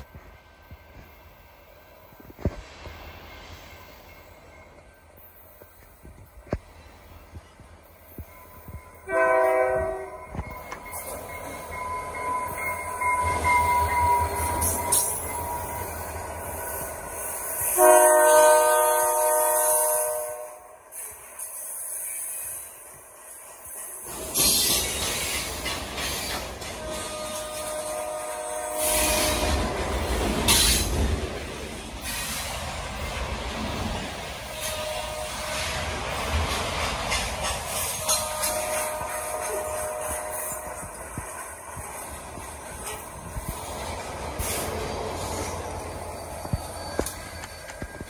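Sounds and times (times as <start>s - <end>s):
rushing hiss of passing train: 0.0s - 48.0s
steel wheels rumbling on rails: 0.0s - 48.0s
locomotive horn blast: 9.1s - 10.4s, 17.6s - 20.8s, 26.8s - 29.7s, 34.5s - 35.8s, 37.8s - 41.0s
high wheel squeal: 44.4s - 48.0s.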